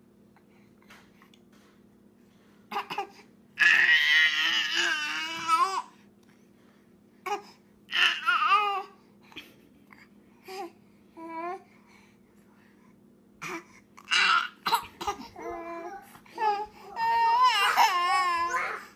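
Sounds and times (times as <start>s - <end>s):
infant crying: 2.8s - 5.9s, 7.3s - 9.0s, 13.4s - 18.9s.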